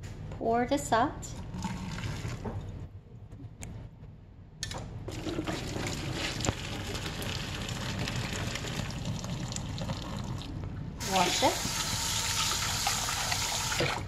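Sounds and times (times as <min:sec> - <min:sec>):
hot water pouring into metal sink: 0:05.1 - 0:14.0.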